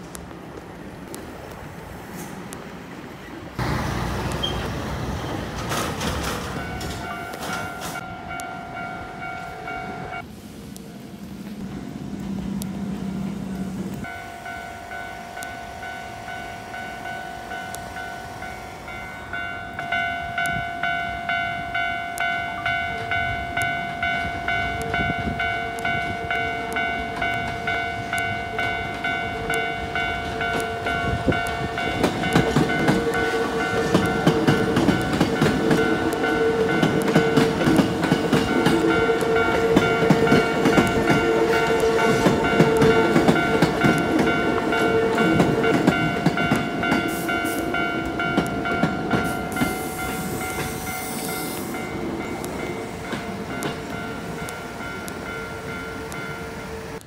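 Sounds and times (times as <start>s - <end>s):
train wheels clattering on rails: 3.6s - 10.3s, 19.1s - 57.0s
level crossing bell clanging: 5.7s - 10.2s, 14.0s - 57.0s.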